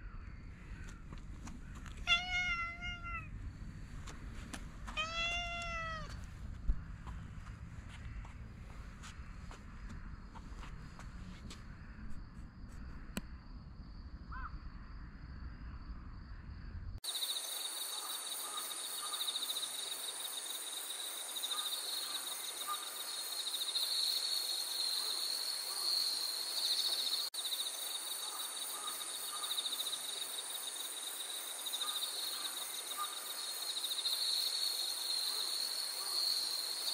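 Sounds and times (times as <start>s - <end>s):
insects trilling: 17.0s - 36.9s.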